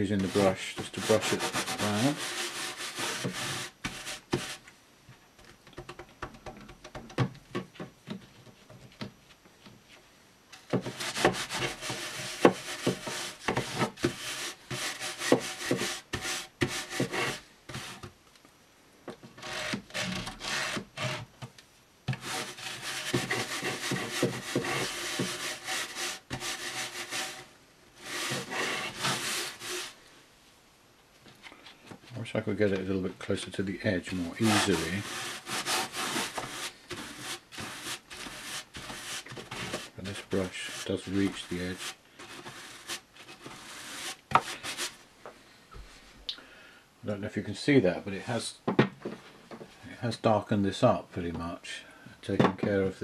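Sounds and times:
brush scrubbing fabric: 0.0s - 4.6s, 10.9s - 17.9s, 22.2s - 30.0s, 34.2s - 45.0s.

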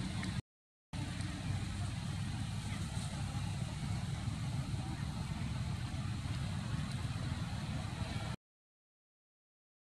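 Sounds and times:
low rumble: 1.0s - 8.4s.

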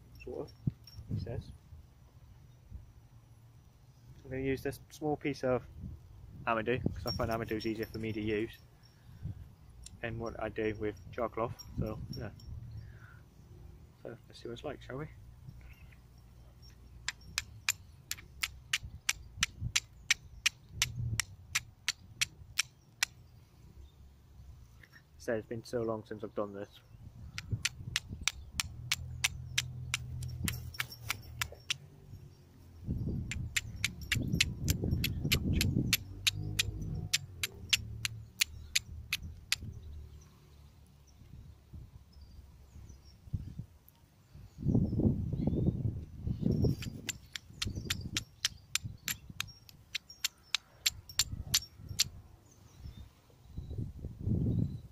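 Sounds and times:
faint bird chirps: 15.1s - 21.2s
steel striking flint clicks: 16.7s - 23.2s, 27.3s - 31.8s, 33.3s - 39.7s, 46.7s - 52.2s
fire striker striking flint: 46.8s - 51.7s.

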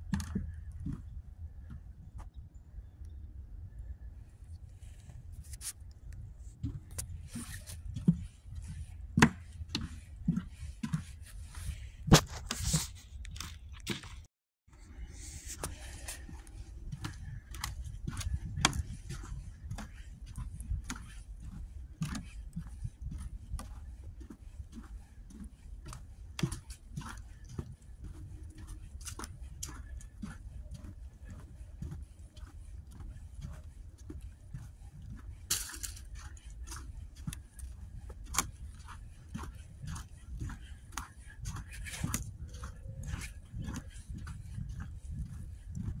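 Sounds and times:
footsteps crunching on snow and leaves: 11.5s - 14.2s.

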